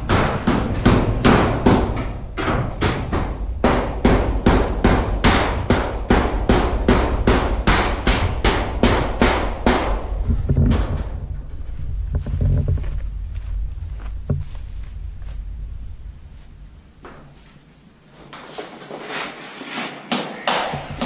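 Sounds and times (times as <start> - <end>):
hammer nailing metal roofing: 0.0 - 11.2.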